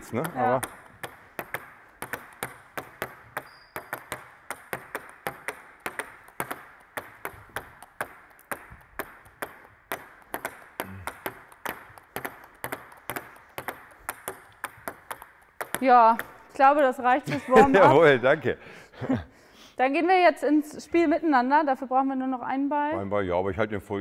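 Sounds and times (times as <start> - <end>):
table tennis balls bouncing on bats: 0.0 - 17.0.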